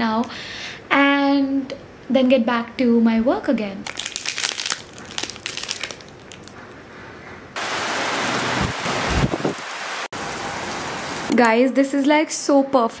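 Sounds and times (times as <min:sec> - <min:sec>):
plastic wrapper crinkling: 0:03.8 - 0:06.6
steady rain: 0:07.6 - 0:11.4.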